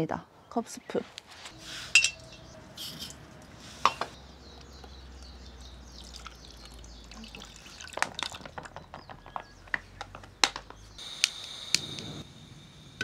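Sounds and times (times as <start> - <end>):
cookware clinks: 2.0 - 2.4
water pouring into a pot: 6.0 - 8.5.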